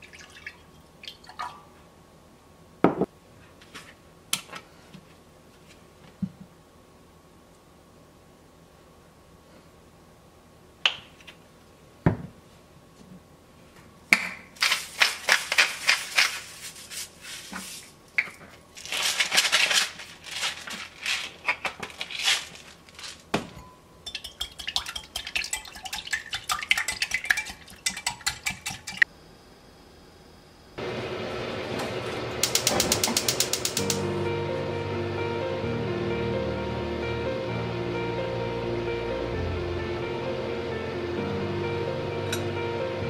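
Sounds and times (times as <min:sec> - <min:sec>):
salt and pepper grinders grinding: 0:14.6 - 0:17.8, 0:18.8 - 0:23.3
whisk rattling in a glass jug: 0:24.0 - 0:29.0.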